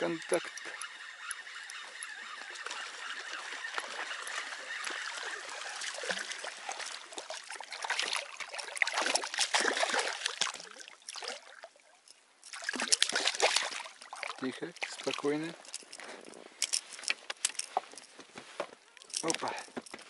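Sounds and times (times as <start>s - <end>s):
fish thrashing and splashing: 0.3s - 11.8s, 12.4s - 16.0s.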